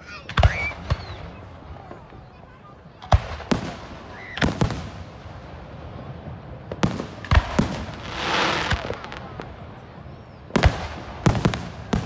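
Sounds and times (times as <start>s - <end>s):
fireworks bursting: 0.2s - 12.0s.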